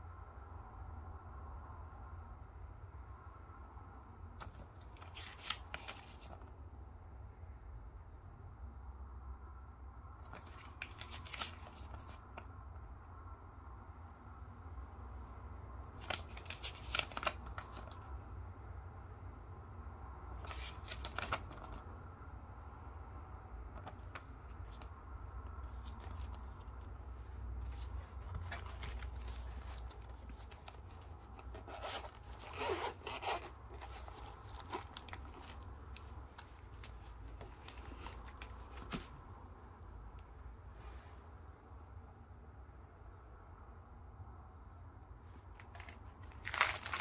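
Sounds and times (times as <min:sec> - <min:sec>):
paper booklet rustling: 0:04.4 - 0:06.5, 0:10.2 - 0:12.5, 0:15.8 - 0:18.1, 0:20.3 - 0:21.8, 0:23.7 - 0:39.3, 0:45.4 - 0:47.0
zipper unzipping: 0:31.6 - 0:34.0.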